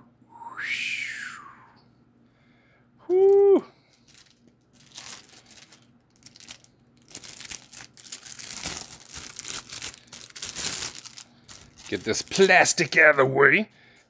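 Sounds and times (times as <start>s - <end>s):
plastic bag crinkling: 3.9s - 13.2s.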